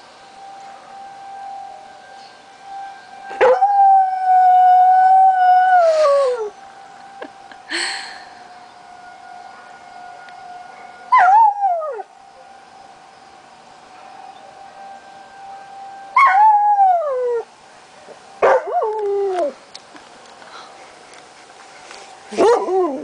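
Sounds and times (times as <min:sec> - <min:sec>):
steady siren tone: 0:00.0 - 0:19.7.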